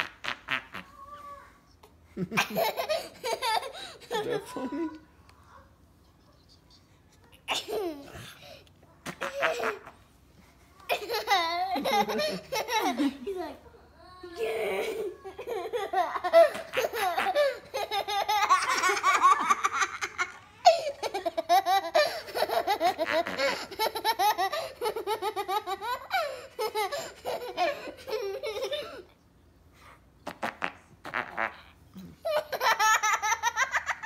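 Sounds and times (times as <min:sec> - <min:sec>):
high-pitched laughter: 0:10.9 - 0:13.6.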